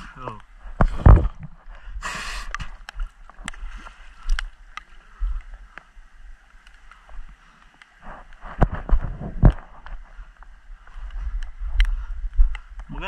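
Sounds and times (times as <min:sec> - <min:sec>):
water sloshing and splashing: 0:00.4 - 0:10.4.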